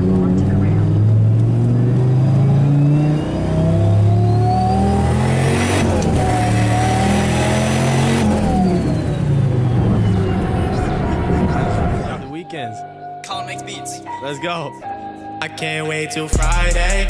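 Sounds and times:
engine accelerating: 0:00.0 - 0:12.3
high turbo whine: 0:00.0 - 0:12.3.

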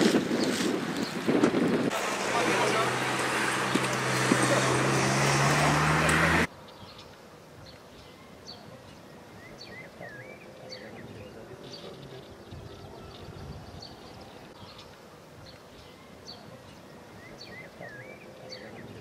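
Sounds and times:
wind buffeting microphone: 0:00.0 - 0:05.4, 0:12.3 - 0:14.6
bird chirps: 0:06.6 - 0:19.0.

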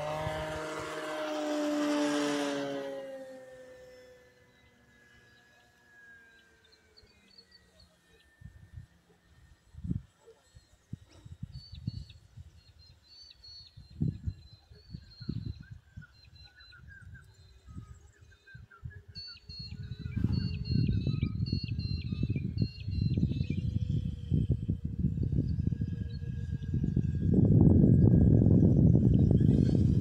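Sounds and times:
wind buffeting microphone: 0:00.0 - 0:02.6, 0:09.6 - 0:13.0, 0:13.6 - 0:30.0
birds chirping: 0:03.8 - 0:30.0.

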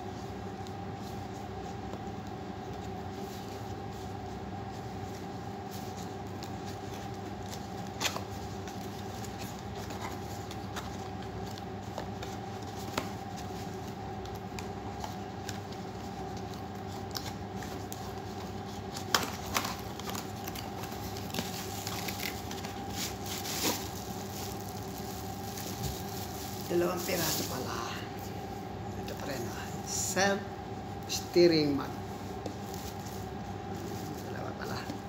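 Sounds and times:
steady background hum: 0:00.0 - 0:35.0
cardboard rustling and sliding: 0:18.9 - 0:27.7.

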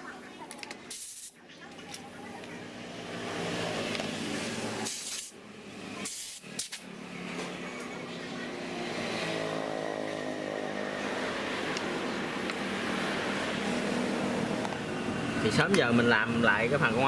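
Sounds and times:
compressed air hisses: 0:00.9 - 0:01.4, 0:04.8 - 0:05.4, 0:06.0 - 0:06.7.

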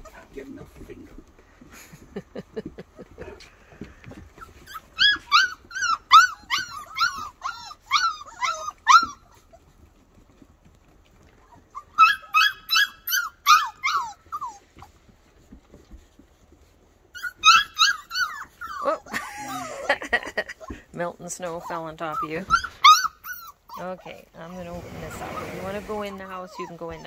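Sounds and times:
puppies whining yelps: 0:04.1 - 0:27.0.

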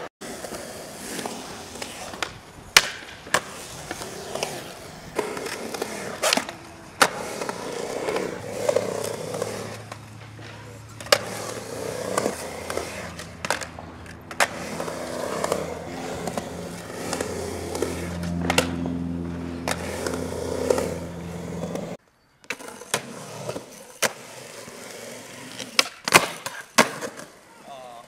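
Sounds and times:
skateboard rolling on concrete: 0:00.0 - 0:28.0
skateboard pops and landings: 0:01.1 - 0:08.2, 0:25.6 - 0:27.3
skateboard clacking on ramp: 0:05.3 - 0:18.8
low hum: 0:13.4 - 0:22.0.

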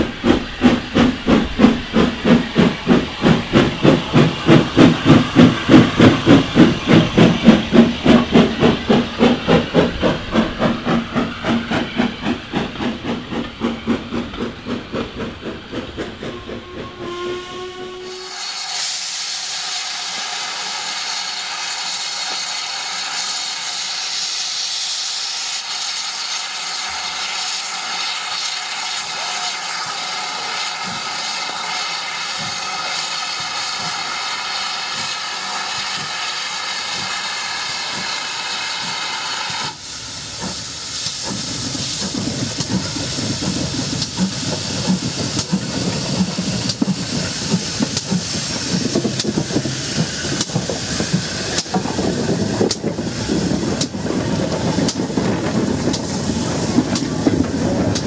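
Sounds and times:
steam hissing: 0:00.0 - 0:58.0
steam train exhaust beats: 0:00.0 - 0:58.0.

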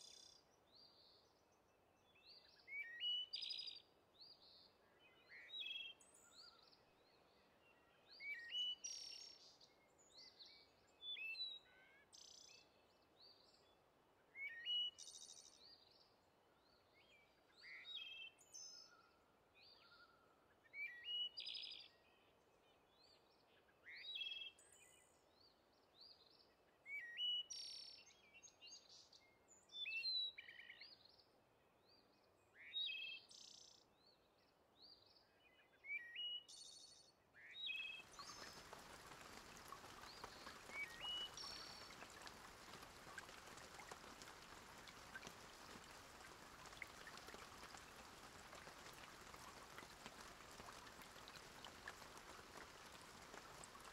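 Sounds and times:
small birds chirping and singing: 0:37.6 - 0:53.9
steady hiss: 0:38.1 - 0:53.9.

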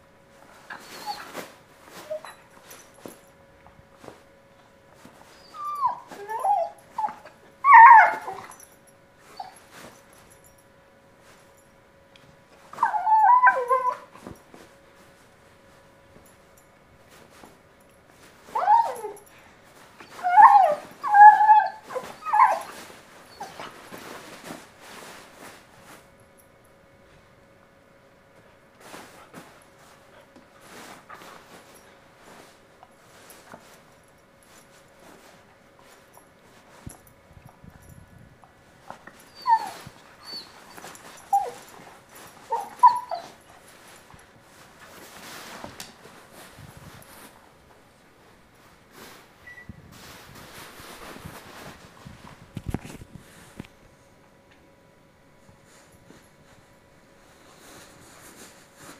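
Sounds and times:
dog whimpering: 0:00.7 - 0:01.4, 0:02.0 - 0:02.5, 0:05.3 - 0:08.6, 0:12.8 - 0:14.2, 0:18.5 - 0:19.3, 0:20.0 - 0:23.7, 0:39.2 - 0:41.8, 0:42.4 - 0:43.5
scuffling on fabric: 0:38.3 - 0:53.8
fabric rustling: 0:48.2 - 0:53.6.

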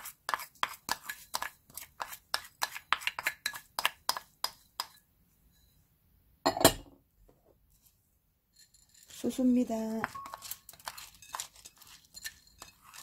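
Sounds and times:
dishes clattering: 0:06.5 - 0:06.9.

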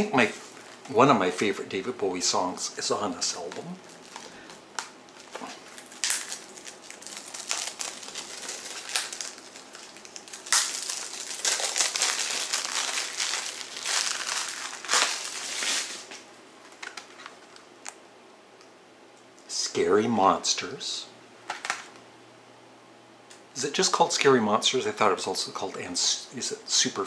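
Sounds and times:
plastic wrapping crinkling: 0:03.2 - 0:17.7.

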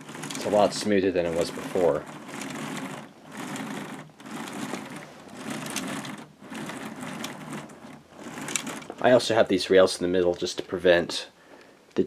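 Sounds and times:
plastic chain and gears clattering: 0:00.0 - 0:09.4.

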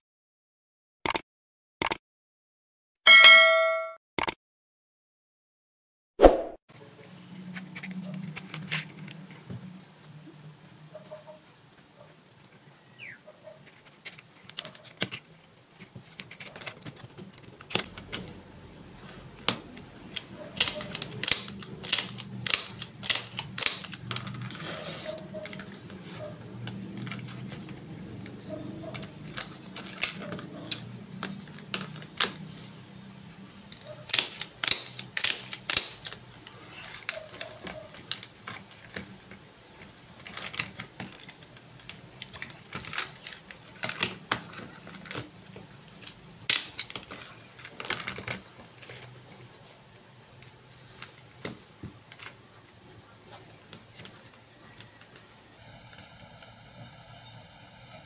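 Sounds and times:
wooden sticks clicking together: 0:33.7 - 0:36.2.

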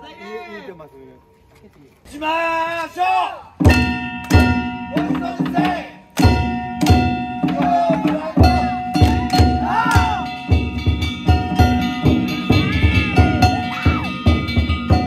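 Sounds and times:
taiko drum beat: 0:03.6 - 0:15.0
ringing gongs: 0:03.7 - 0:05.4, 0:06.2 - 0:07.7, 0:08.4 - 0:15.0.

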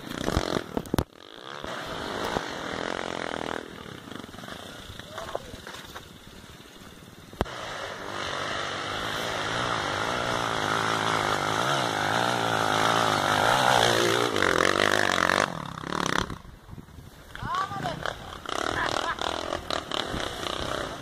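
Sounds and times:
dirt bike engine revving: 0:00.0 - 0:05.3, 0:07.4 - 0:16.5, 0:17.7 - 0:21.0.

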